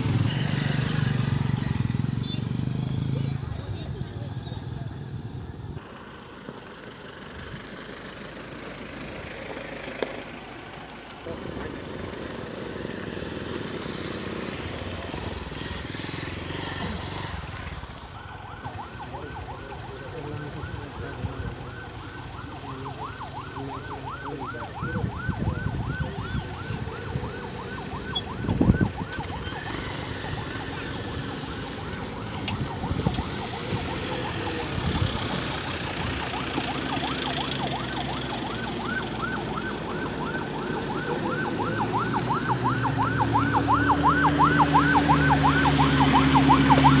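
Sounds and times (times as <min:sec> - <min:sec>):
motorcycle and truck engines running: 0:00.0 - 0:47.0
siren yelping: 0:18.0 - 0:47.0.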